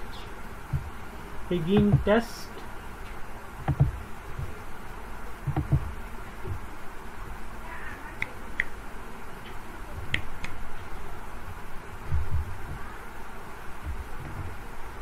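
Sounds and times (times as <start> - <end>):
steady background noise: 0.0 - 15.0
dull low thumps: 0.6 - 1.1, 3.6 - 4.7, 5.4 - 6.7, 12.0 - 12.9, 13.8 - 14.6.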